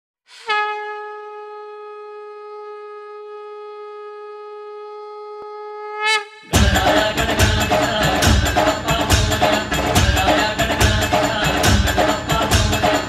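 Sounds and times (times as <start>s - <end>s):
conch shell blown: 0.3s - 6.8s.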